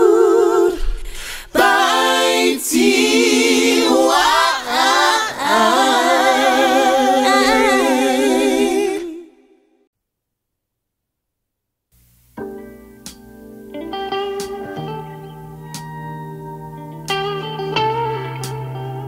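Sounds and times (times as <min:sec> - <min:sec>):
voices singing a cappella: 0:00.0 - 0:09.6.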